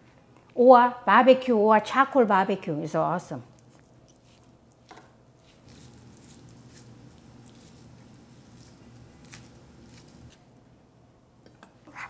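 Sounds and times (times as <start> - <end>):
meat squishing: 3.5 - 10.4.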